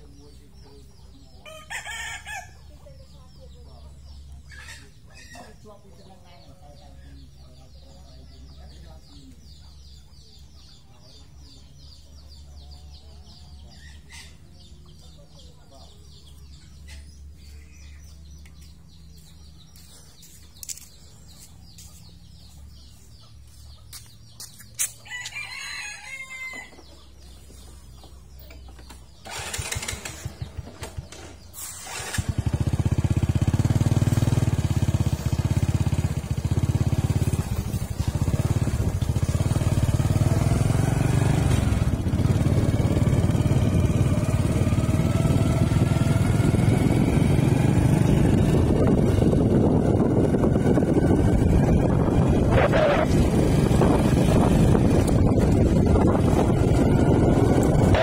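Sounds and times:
rooster crowing: 1.4 - 2.6, 25.0 - 26.8
vehicle engine starting and running: 27.0 - 58.0.

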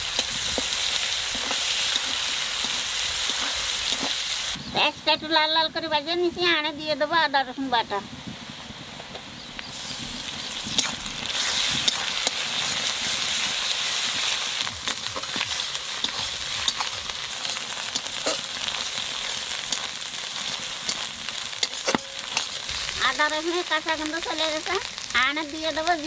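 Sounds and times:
onions sizzling in oil: 0.0 - 26.0
spatula scraping pan: 14.8 - 23.0.

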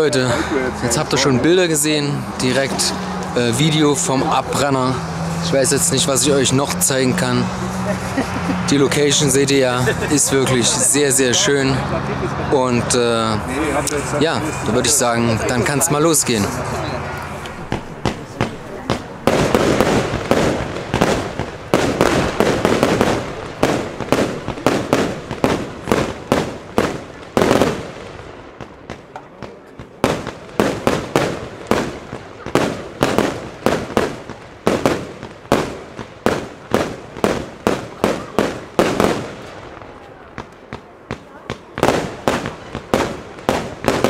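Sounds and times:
firework crackling volleys: 0.0 - 11.9, 12.8 - 44.0
firework shots banging: 13.8 - 44.0.

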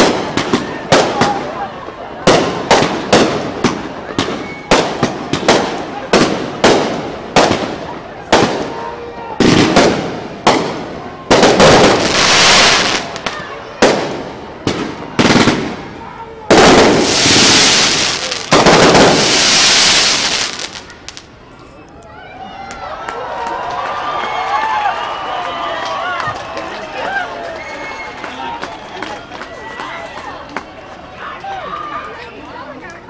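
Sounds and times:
rapid-fire firework volleys: 2.2 - 21.3
fireworks shells bursting: 16.5 - 21.3.

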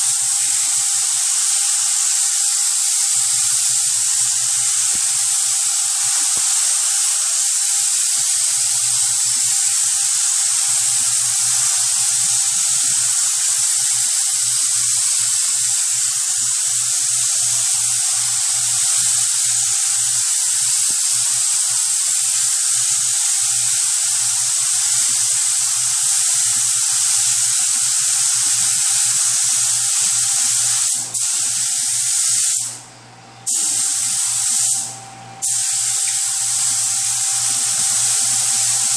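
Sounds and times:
spray gun hissing: 0.0 - 32.8, 33.5 - 38.9.

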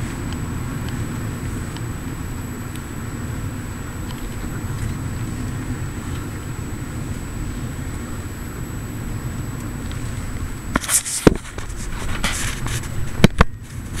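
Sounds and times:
car engine and tyre rumble: 0.0 - 14.0
scraping rustles: 9.8 - 14.0.

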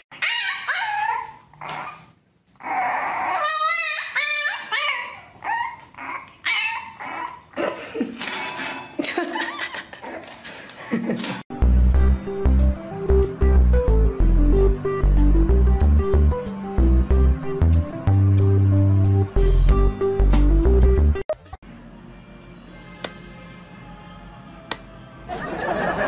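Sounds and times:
puppy whining and yipping: 0.1 - 7.6
music: 11.5 - 25.7.

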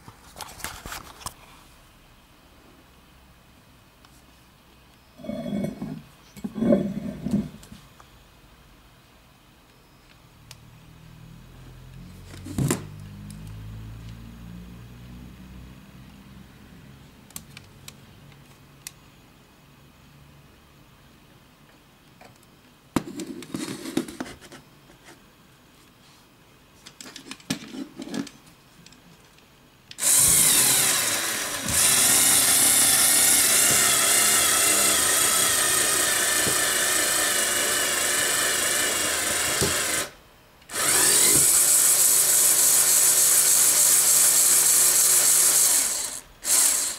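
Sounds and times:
toy electric motor whining: 30.0 - 46.9.

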